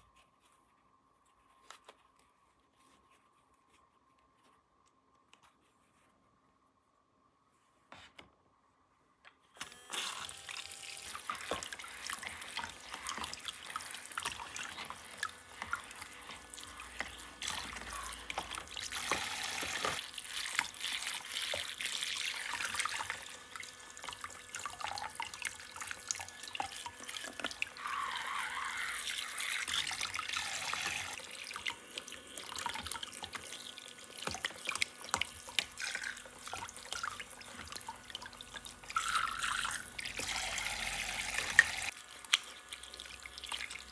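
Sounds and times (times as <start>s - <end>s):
water running and splashing: 10.3s - 43.9s.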